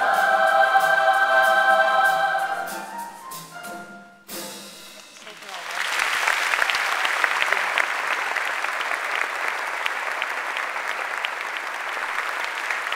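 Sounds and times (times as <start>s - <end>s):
large audience applauding: 5.0s - 12.9s.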